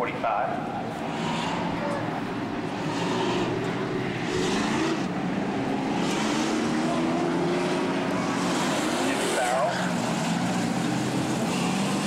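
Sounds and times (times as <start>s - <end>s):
race car engines revving: 0.0s - 12.0s.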